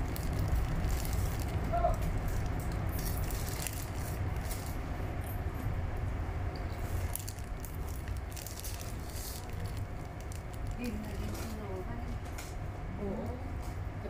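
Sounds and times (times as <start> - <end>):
plastic snack packet crinkling: 0.0 - 4.8, 7.0 - 11.7
low rumble of train carriage: 0.0 - 14.0.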